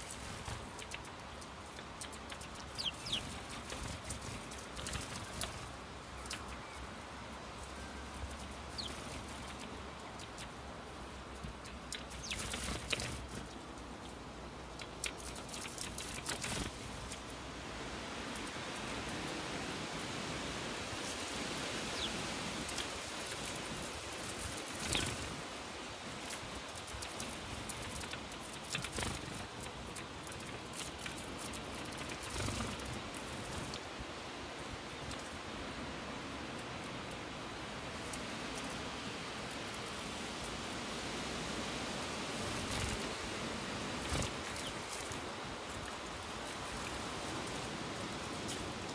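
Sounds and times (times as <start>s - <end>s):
wings fluttering: 0.0s - 6.8s, 7.6s - 17.4s, 20.9s - 33.9s, 42.3s - 48.9s
steady hiss: 0.0s - 48.9s
sparrows chirping: 1.7s - 5.5s, 8.6s - 10.6s, 11.5s - 14.2s, 21.9s - 23.0s, 24.8s - 25.2s.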